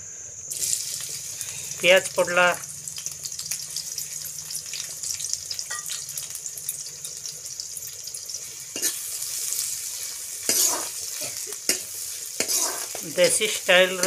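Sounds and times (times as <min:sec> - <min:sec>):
onions sizzling in hot oil: 0:00.4 - 0:14.0
spoon scraping pan: 0:08.7 - 0:14.0.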